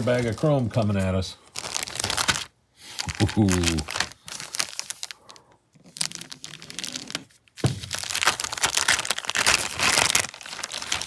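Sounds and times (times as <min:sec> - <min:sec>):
plastic bag crinkling: 0:00.0 - 0:00.9, 0:01.5 - 0:11.0.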